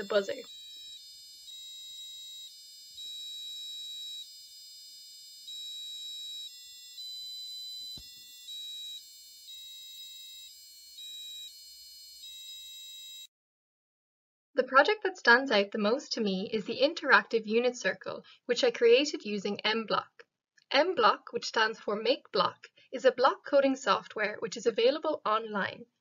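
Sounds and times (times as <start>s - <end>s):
buzzer playing electronic beep tune: 0.0s - 13.3s.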